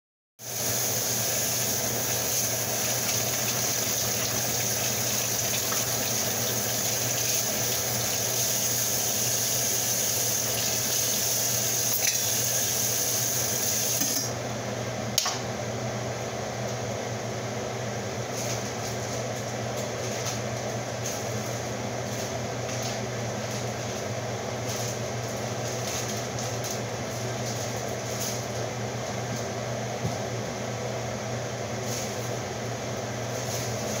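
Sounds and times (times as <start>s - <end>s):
kitchen tap running: 0.5s - 14.2s.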